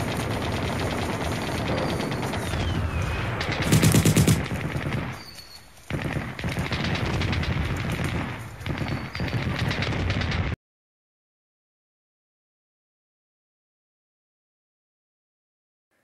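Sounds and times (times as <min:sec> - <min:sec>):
machine-gun fire: 0:00.0 - 0:10.6.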